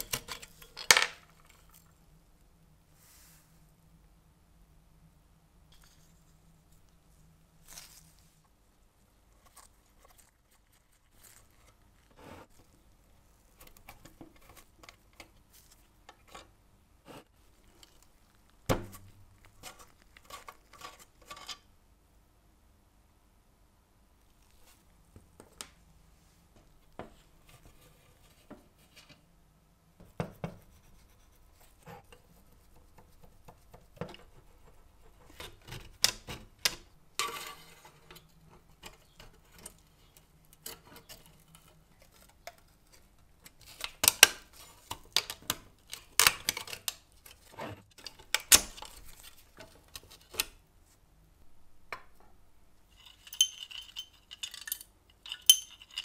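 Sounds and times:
small metal clinks and taps: 0:53.0 - 0:56.0.

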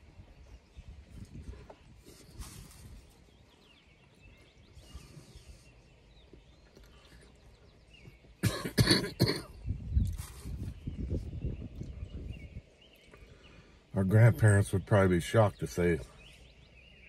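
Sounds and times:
man coughing: 0:08.4 - 0:09.6.

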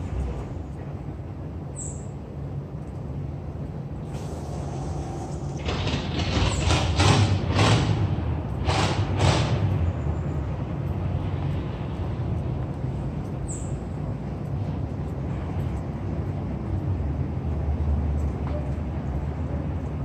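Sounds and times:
street traffic rumbling: 0:00.0 - 0:20.0
short hisses: 0:04.1 - 0:05.6.

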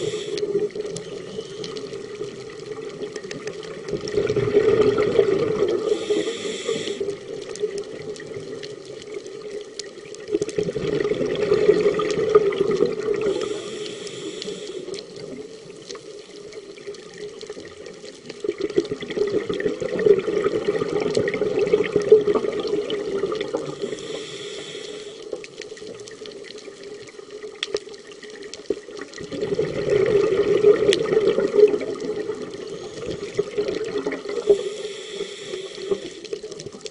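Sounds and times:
regulator inhalation hiss: 0:00.0 - 0:02.1, 0:05.8 - 0:07.4, 0:13.2 - 0:15.2, 0:23.7 - 0:25.4, 0:34.3 - 0:36.5
exhaled bubbles rushing underwater: 0:00.0 - 0:36.9.

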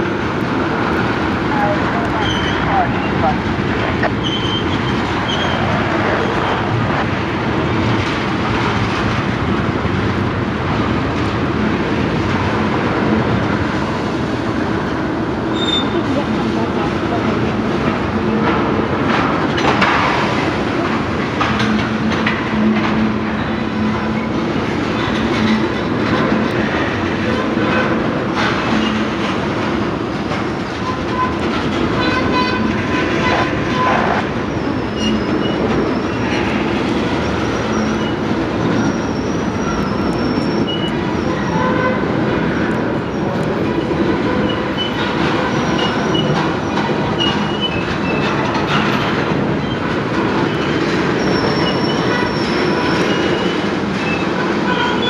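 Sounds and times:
high-pitched wheel squeal: 0:04.1 - 0:06.7, 0:15.5 - 0:16.0, 0:32.2 - 0:42.0, 0:50.5 - 0:55.0
train wheels clattering over rail joints: 0:06.7 - 0:55.0.

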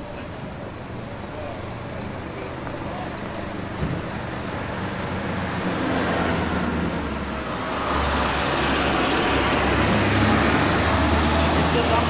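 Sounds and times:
vehicle engine running: 0:00.0 - 0:05.6
road rumble: 0:00.0 - 0:12.0.

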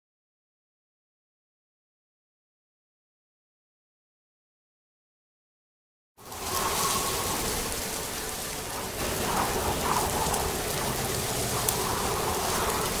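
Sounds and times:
steady rain hissing: 0:06.2 - 0:13.0.

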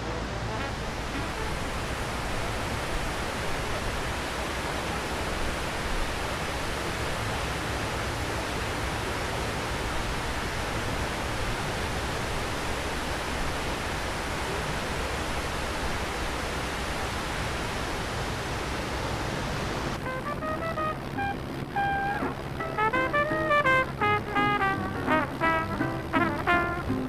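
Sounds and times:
waterfall rushing hiss: 0:00.0 - 0:27.0.

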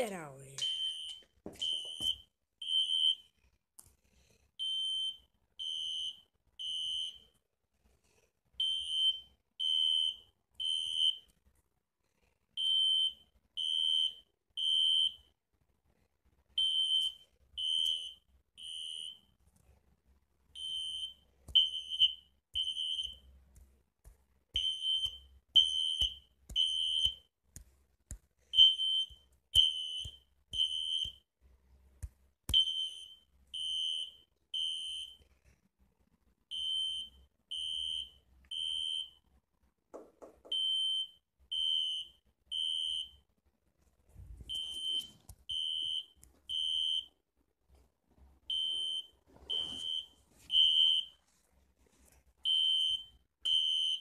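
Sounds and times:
smoke alarm beeping: 0:00.6 - 0:03.3, 0:04.6 - 0:07.2, 0:08.6 - 0:11.3, 0:12.6 - 0:15.3, 0:16.6 - 0:19.3, 0:20.6 - 0:23.3, 0:24.6 - 0:27.3, 0:28.5 - 0:31.2, 0:32.5 - 0:35.2, 0:36.5 - 0:39.2, 0:40.5 - 0:43.2, 0:44.5 - 0:47.2, 0:48.5 - 0:51.2, 0:52.4 - 0:54.0.

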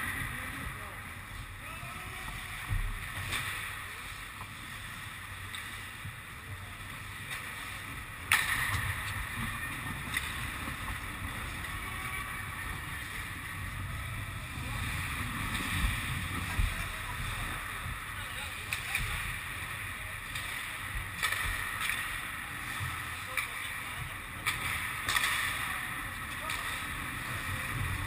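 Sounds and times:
sharp crack: 0:08.2 - 0:09.2, 0:21.2 - 0:22.1, 0:24.4 - 0:26.9.

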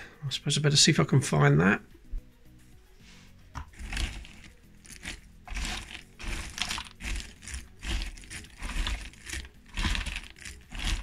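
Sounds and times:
cardboard jigsaw pieces rustling: 0:03.7 - 0:11.0.

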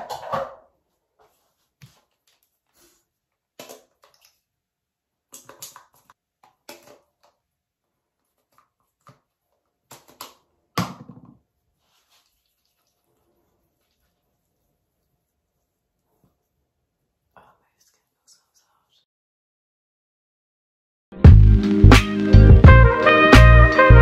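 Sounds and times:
plastic bottles clicking and tapping: 0:03.6 - 0:04.4, 0:05.3 - 0:07.4, 0:08.3 - 0:11.4.

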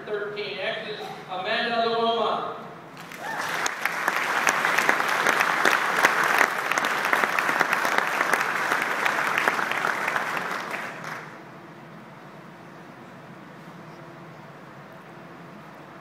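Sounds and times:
audience applauding: 0:03.0 - 0:11.4.

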